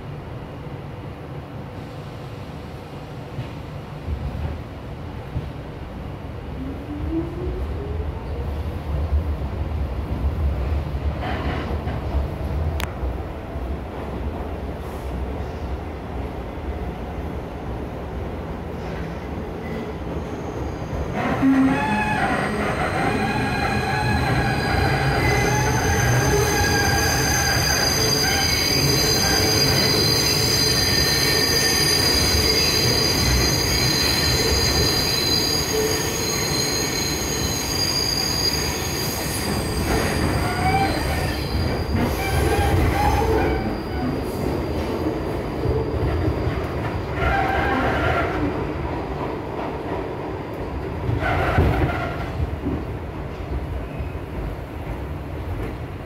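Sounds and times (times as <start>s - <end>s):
subway train rumbling in tunnel: 0.0s - 56.0s
high-pitched wheel squeals: 20.2s - 44.3s.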